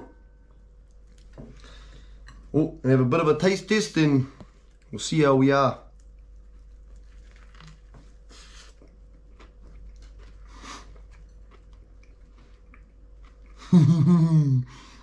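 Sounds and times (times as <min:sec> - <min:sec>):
man chewing: 0:00.8 - 0:02.5, 0:05.9 - 0:14.0.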